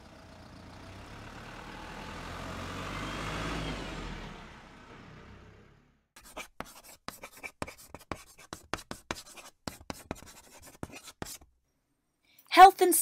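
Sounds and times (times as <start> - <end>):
chalk scratching on a blackboard: 6.2 - 11.5.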